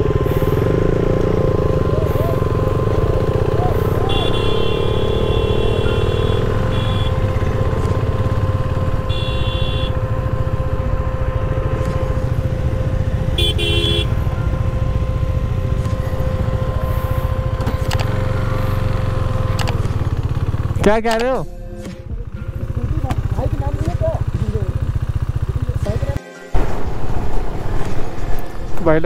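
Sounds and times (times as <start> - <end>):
motorcycle engine rumbling: 0.0 - 29.0
high-pitched horn beeps: 2.0 - 19.6.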